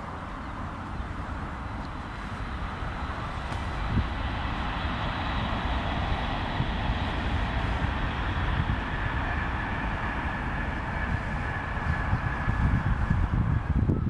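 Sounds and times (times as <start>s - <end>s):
distant vehicle hum: 0.0s - 14.0s
wind rumble on microphone: 0.0s - 14.0s.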